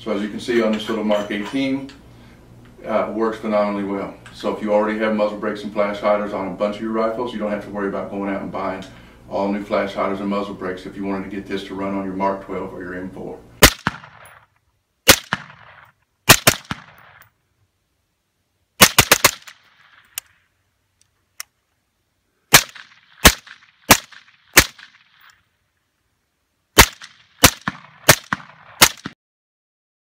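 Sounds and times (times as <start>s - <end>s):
suppressed rifle shots with echo: 13.6s - 14.5s, 15.1s - 17.3s, 18.8s - 20.2s, 22.5s - 25.3s, 26.8s - 29.2s.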